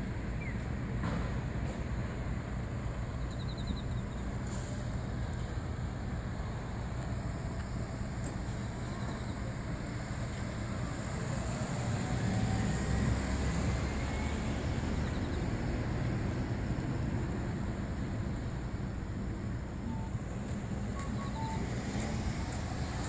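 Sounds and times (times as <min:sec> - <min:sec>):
cars driving past: 0:09.9 - 0:19.2, 0:19.9 - 0:23.0.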